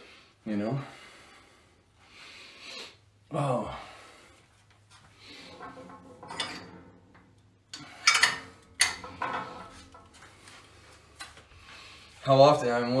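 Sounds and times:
sharp clicks and knocks: 0:05.3 - 0:10.6.

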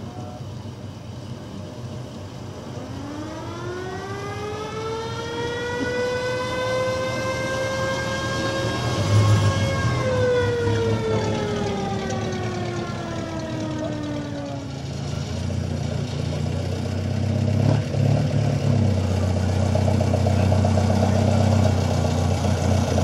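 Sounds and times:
emergency vehicle siren wailing: 0:02.3 - 0:17.0.

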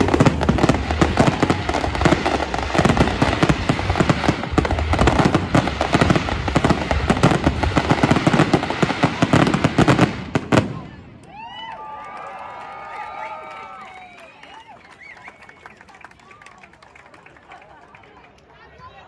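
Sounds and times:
fireworks bangs and crackle: 0:00.0 - 0:11.3.

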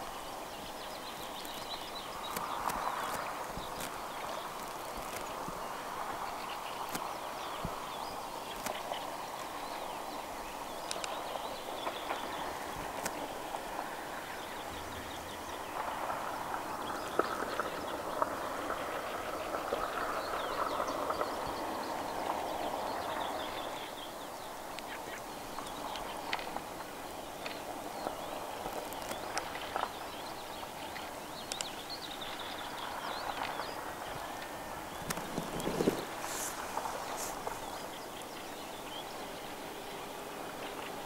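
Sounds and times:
small clicks: 0:01.1 - 0:05.6, 0:08.5 - 0:09.6, 0:10.8 - 0:11.2, 0:34.9 - 0:37.8.

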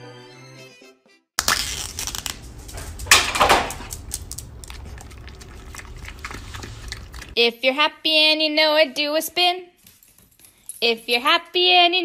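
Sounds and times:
dog licking: 0:04.0 - 0:07.4.

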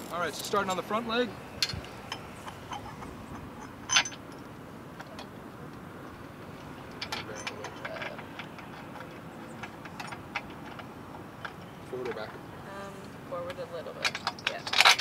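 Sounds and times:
sharp metal clank: 0:01.6 - 0:04.3.

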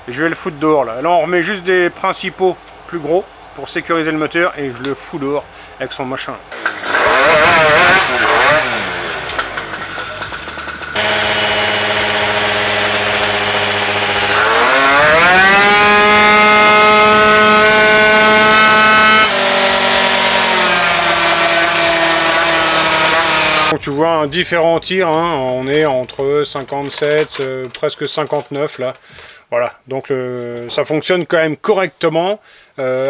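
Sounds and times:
scooter engine revving: 0:06.5 - 0:23.8.

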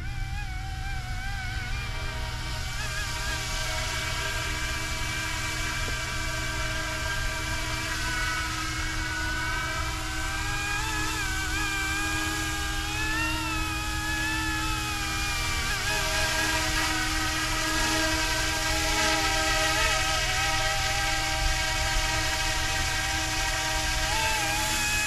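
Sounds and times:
rc helicopter motor whine: 0:00.0 - 0:25.0.

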